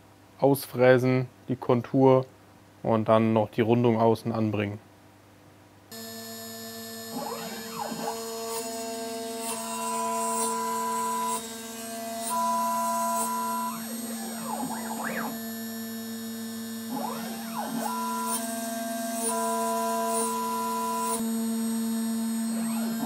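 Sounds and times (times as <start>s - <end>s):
stepper motor whines: 5.9s - 23.0s
milling machine motor hum: 6.0s - 23.0s.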